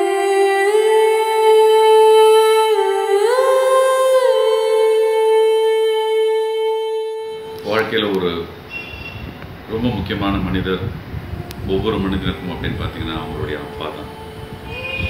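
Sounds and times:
person humming a slow melody: 0.0s - 7.8s, 11.2s - 15.0s.

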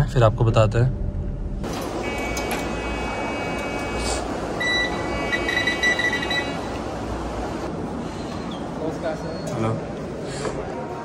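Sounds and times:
loud high electronic beep: 4.6s - 6.7s.

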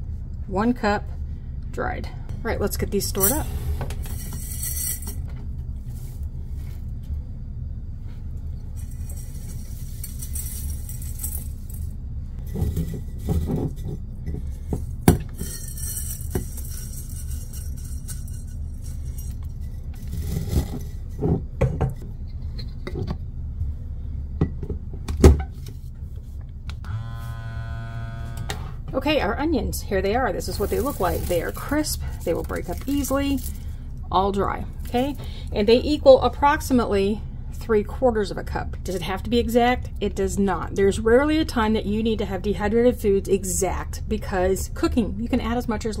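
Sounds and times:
steady low hum: 0.0s - 46.0s
small vacuum pump motor buzzing: 26.8s - 28.9s
dried food shreds rustling: 30.4s - 33.7s.

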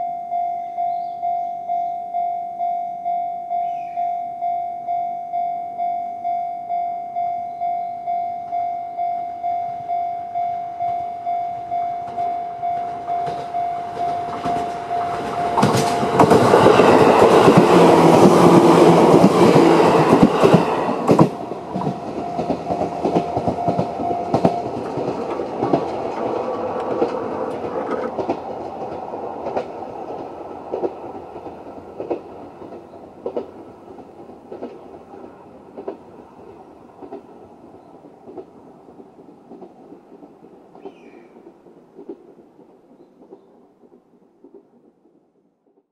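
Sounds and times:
level crossing alarm bell dinging: 0.0s - 17.4s, 21.4s - 25.1s
electric train passing: 0.0s - 45.6s
train wheels clicking over rail joints: 10.8s - 45.6s.

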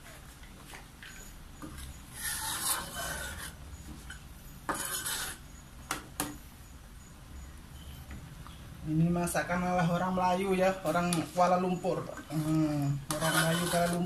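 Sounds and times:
metal ladle scraping wok: 1.8s - 3.6s, 4.7s - 5.5s, 12.2s - 14.0s.

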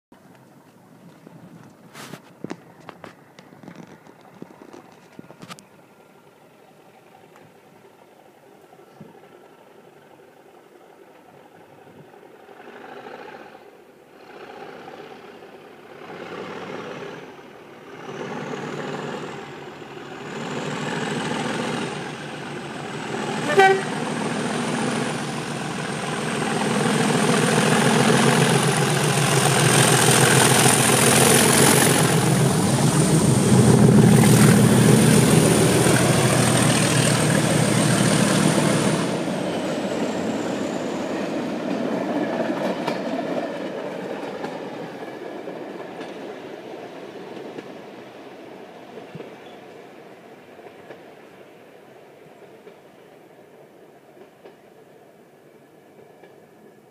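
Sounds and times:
diesel locomotive engine: 0.2s - 56.9s
train horn blast: 23.4s - 24.1s.

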